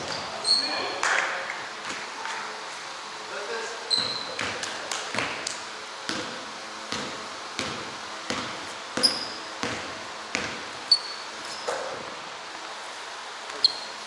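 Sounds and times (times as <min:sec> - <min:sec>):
sneaker squeaks on wood floor: 0:00.0 - 0:00.8, 0:03.9 - 0:04.6, 0:08.3 - 0:09.8, 0:10.4 - 0:12.1, 0:13.5 - 0:14.0
basketball dribbling on hardwood: 0:03.9 - 0:05.5, 0:06.1 - 0:10.8.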